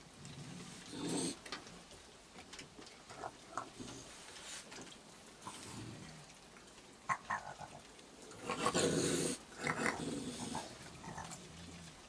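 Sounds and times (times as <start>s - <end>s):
raccoons growling: 0.2s - 1.5s, 5.4s - 12.0s.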